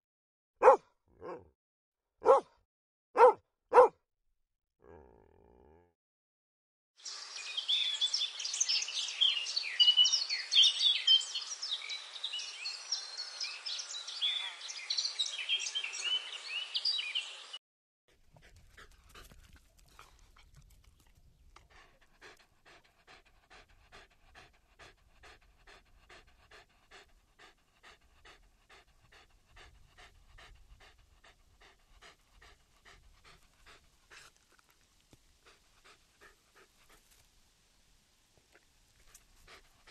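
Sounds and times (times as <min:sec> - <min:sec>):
dog panting: 0:18.1 - 0:34.7, 0:35.4 - 0:37.2, 0:39.0 - 0:39.9.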